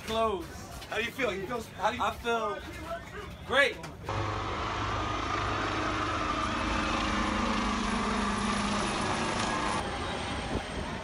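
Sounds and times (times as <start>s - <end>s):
helicopter flying low overhead: 4.1s - 11.0s.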